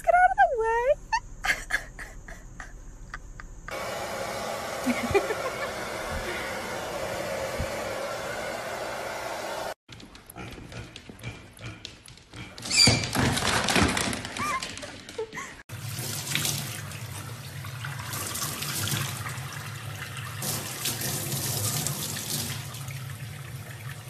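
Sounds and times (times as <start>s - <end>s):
tap water running into sink: 15.7s - 24.0s.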